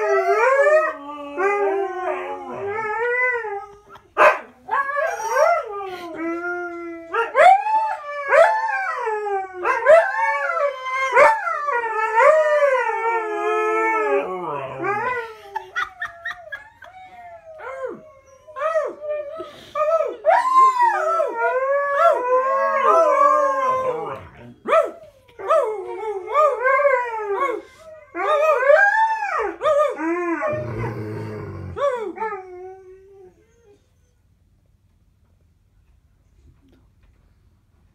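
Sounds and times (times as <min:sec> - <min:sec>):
dogs howling together: 0:00.0 - 0:03.9, 0:04.6 - 0:34.1
dog growling: 0:30.4 - 0:32.0.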